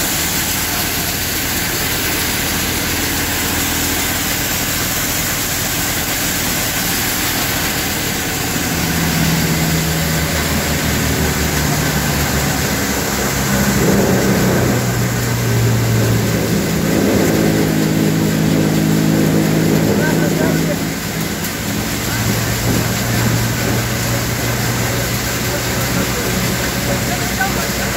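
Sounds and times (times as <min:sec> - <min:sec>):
straw and chaff rushing hiss: 0:00.0 - 0:27.9
thresher machine drone: 0:00.0 - 0:27.9.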